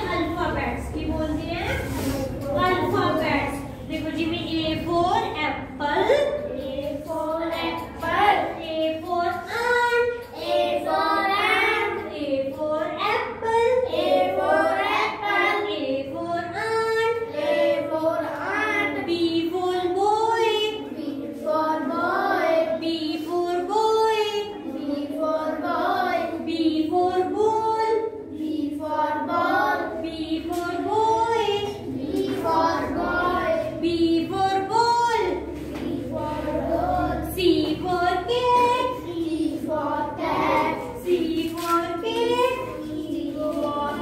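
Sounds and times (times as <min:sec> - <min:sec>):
children and woman singing: 0:00.0 - 0:44.0.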